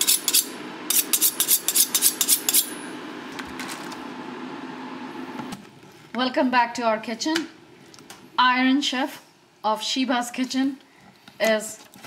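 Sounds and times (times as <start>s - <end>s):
knife being sharpened: 0.0s - 2.8s.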